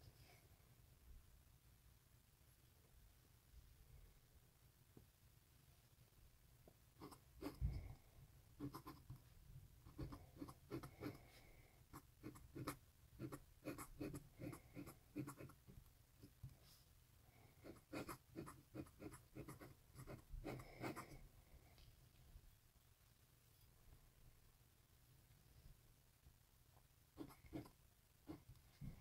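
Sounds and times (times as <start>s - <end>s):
pen nib scratching on paper: 7.0s - 7.7s, 8.6s - 9.2s, 9.9s - 11.3s, 11.9s - 15.6s, 17.6s - 21.2s, 27.2s - 28.5s.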